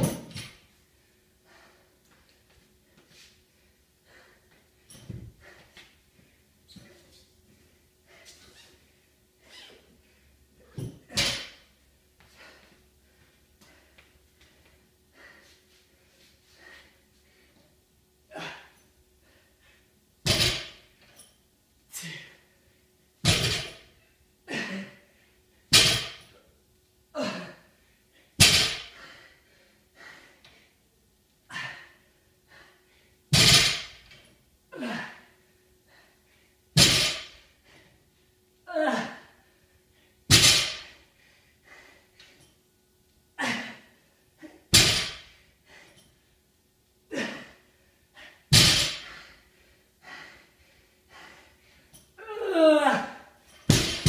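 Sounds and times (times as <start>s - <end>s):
exercise thuds: 0.0s - 0.5s, 23.2s - 23.8s, 33.3s - 34.1s, 48.5s - 49.3s, 53.6s - 54.0s
person exhaling and grunting: 18.3s - 18.8s, 21.9s - 22.4s, 27.2s - 27.7s, 34.7s - 35.2s, 38.7s - 39.3s, 43.4s - 44.6s, 47.1s - 47.6s.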